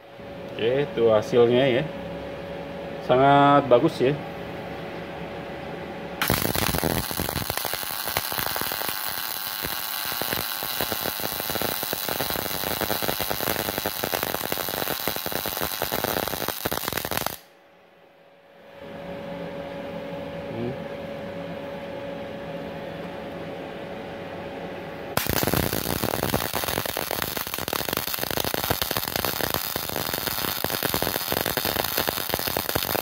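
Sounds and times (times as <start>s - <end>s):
welding arc crackling: 6.2s - 17.5s, 25.2s - 33.0s.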